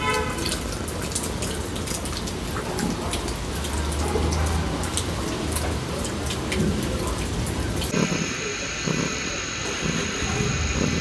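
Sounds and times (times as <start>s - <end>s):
cat purring: 7.9s - 11.0s.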